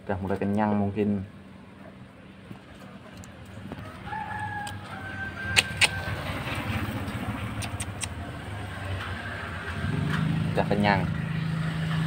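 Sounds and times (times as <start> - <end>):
motorcycle engine running: 5.9 - 12.0
sharp clicks: 7.4 - 8.3.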